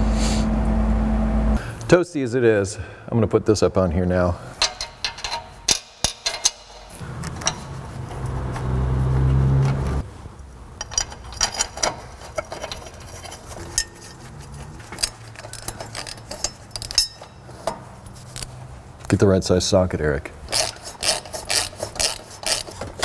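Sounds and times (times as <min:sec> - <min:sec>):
low hum: 0:00.0 - 0:01.8
metal hardware clinking: 0:04.6 - 0:08.3, 0:10.8 - 0:18.6.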